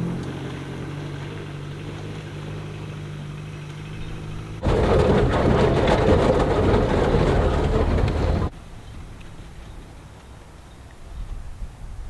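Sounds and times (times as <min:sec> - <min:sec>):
rough rushing rumble: 0:00.0 - 0:09.2
car engine and road hum: 0:00.0 - 0:11.8.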